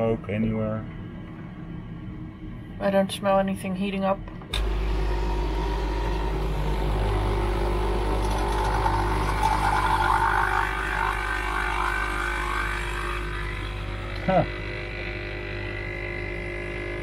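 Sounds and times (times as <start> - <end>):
coffee machine pump humming: 4.4 - 17.0
coffee gurgling into mug: 7.9 - 13.8.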